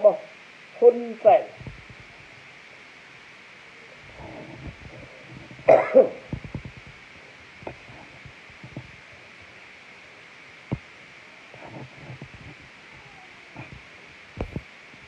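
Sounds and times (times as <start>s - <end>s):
faint steady hiss: 0.0s - 15.0s
man coughing: 5.7s - 6.3s.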